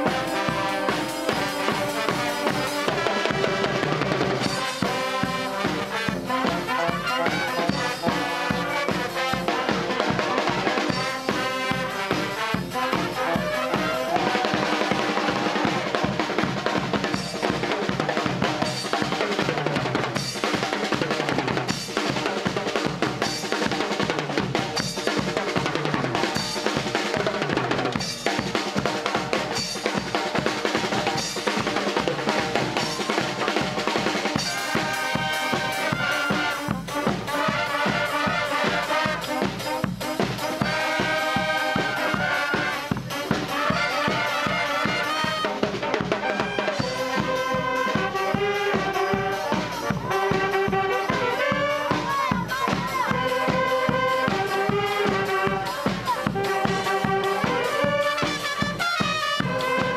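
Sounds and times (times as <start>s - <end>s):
horn melody: 0.0s - 16.4s, 30.7s - 59.9s
bass drum and snare beat: 0.0s - 59.9s.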